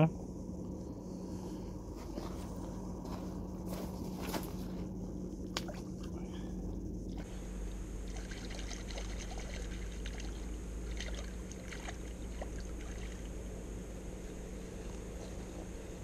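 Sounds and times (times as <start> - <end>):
water splashing and trickling: 8.0 - 13.3.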